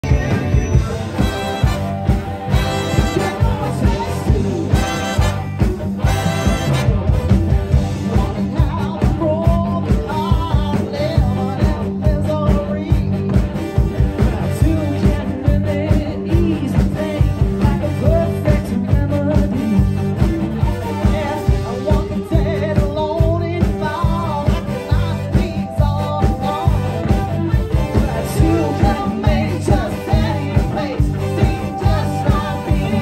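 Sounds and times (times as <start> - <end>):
electric guitars: 0.0 - 33.0
steady drum beat: 0.0 - 33.0
woman singing: 28.0 - 33.0.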